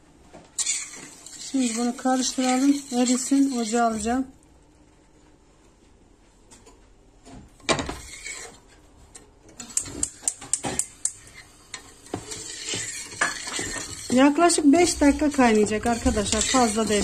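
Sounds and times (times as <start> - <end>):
liquid swishing: 0.6 - 4.2, 8.0 - 8.7, 11.2 - 17.0.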